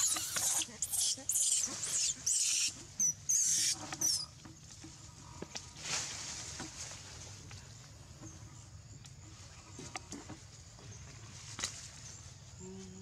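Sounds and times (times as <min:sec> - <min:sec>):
monkey screaming: 0:00.0 - 0:04.2
rustling in leaves and grass: 0:00.0 - 0:13.0.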